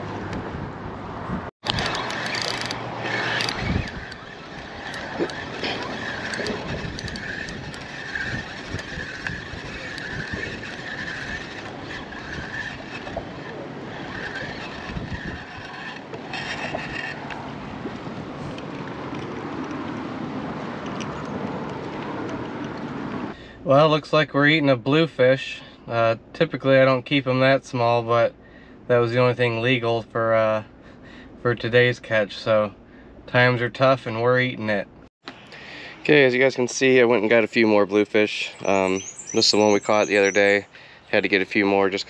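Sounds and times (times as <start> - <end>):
wind noise on microphone: 0.0 - 23.3
fishing reel whirring: 1.6 - 17.6.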